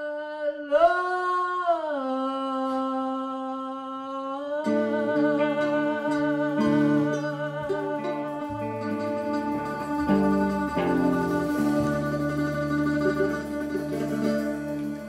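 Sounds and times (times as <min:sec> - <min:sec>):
blues band sustained low chords: 0:04.7 - 0:15.0
held guitar lead note with vibrato: 0:04.7 - 0:15.0.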